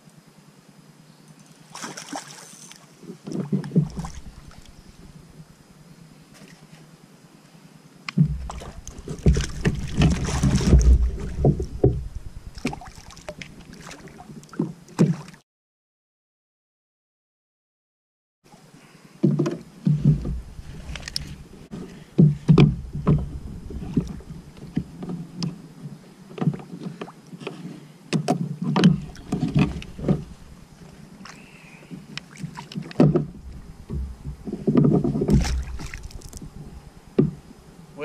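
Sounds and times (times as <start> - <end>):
low rumble: 8.2 - 13.7, 20.0 - 25.0, 29.0 - 31.2, 33.2 - 38.0
knocks against plastic kayak: 21.2 - 25.2, 37.2 - 37.4.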